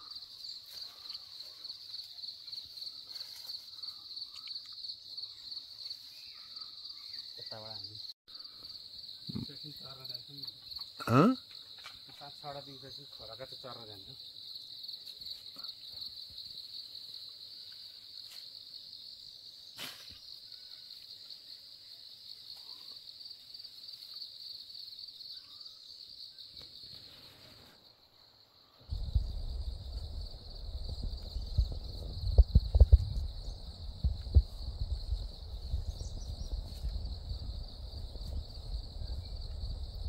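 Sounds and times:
high-pitched insect chorus: 0.0 - 40.0
loud low rumble: 28.9 - 40.0.

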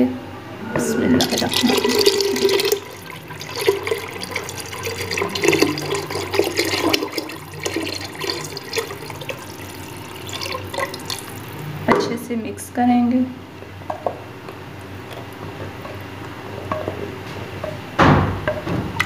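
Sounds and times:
liquid pouring and splashing: 1.2 - 11.9, 14.4 - 16.9.

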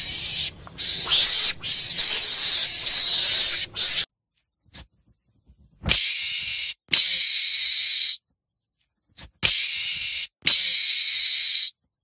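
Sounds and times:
meerkat hissing: 0.0 - 4.1.

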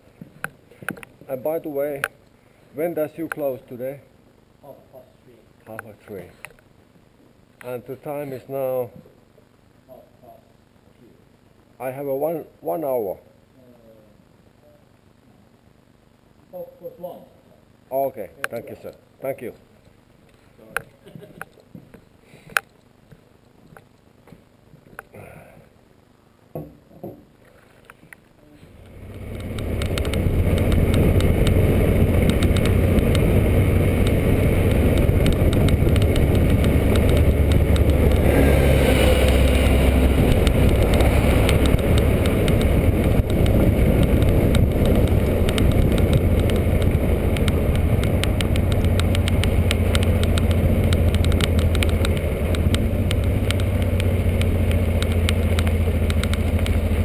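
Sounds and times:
motorcycle engine running: 28.8 - 57.0
wind noise: 28.8 - 57.0.

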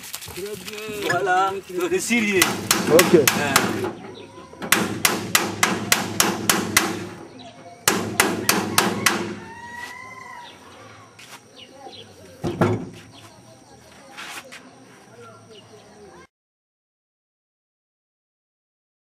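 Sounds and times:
hammer blows on metal: 2.3 - 4.0, 4.6 - 9.5.

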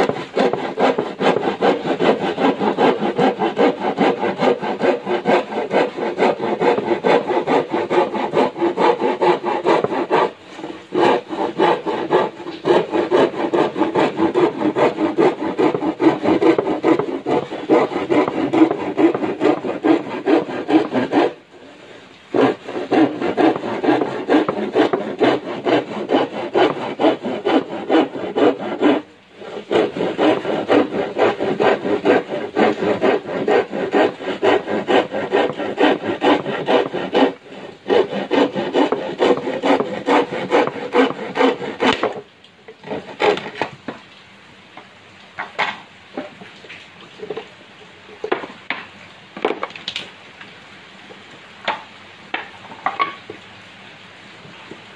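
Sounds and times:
handsaw cutting wooden board: 0.0 - 42.2, 42.8 - 43.7.

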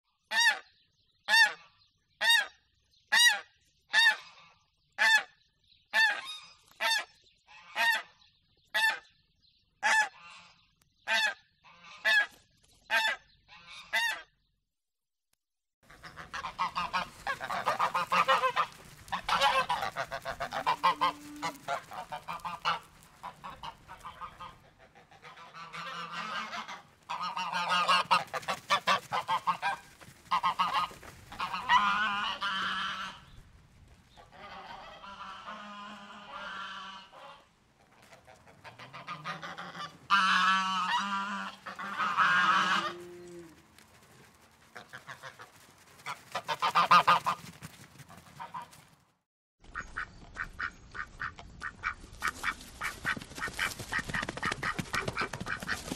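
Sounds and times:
geese honking and cackling: 0.3 - 0.7, 1.3 - 5.3, 5.9 - 9.1, 9.8 - 14.3, 15.9 - 33.4, 34.1 - 47.5, 48.1 - 48.8, 49.8 - 55.9
goose honking: 9.8 - 14.3, 15.9 - 33.3, 34.2 - 43.6, 44.8 - 47.5.

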